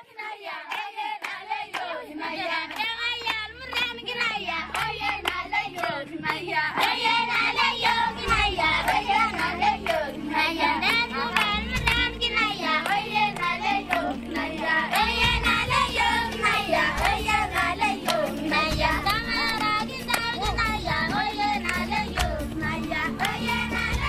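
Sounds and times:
children singing: 0.0 - 24.0
hand claps: 0.7 - 2.0, 2.6 - 24.0.

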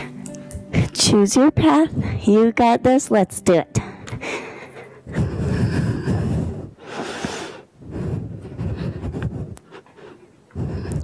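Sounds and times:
woman breathing hard: 3.8 - 11.0.

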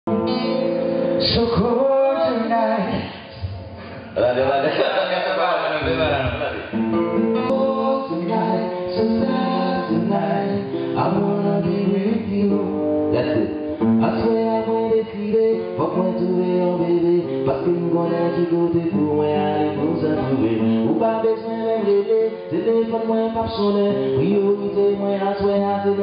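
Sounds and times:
acoustic guitar strumming: 0.1 - 26.0.

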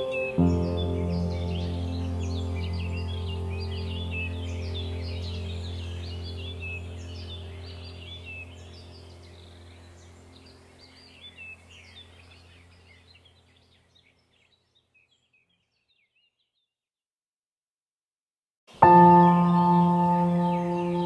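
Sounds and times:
low steady drone: 0.0 - 12.3
birds chirping and trilling: 0.0 - 16.7, 18.7 - 21.0.

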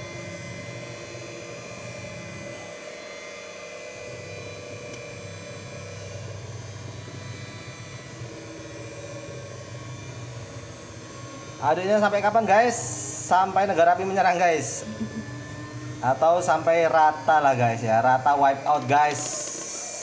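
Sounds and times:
electric hand mixer running: 0.0 - 20.0.

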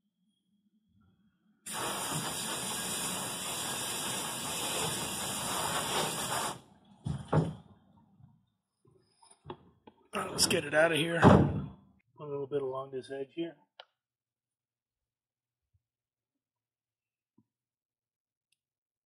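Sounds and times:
spray nozzle hissing: 1.7 - 6.6.

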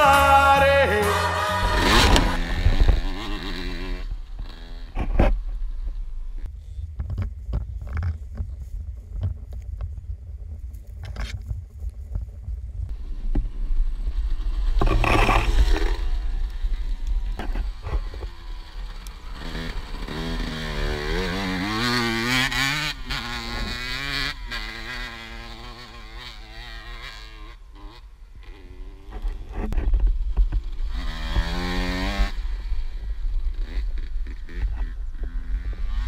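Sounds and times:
dirt bike engine revving: 0.0 - 5.8, 13.9 - 29.7, 30.6 - 36.0.

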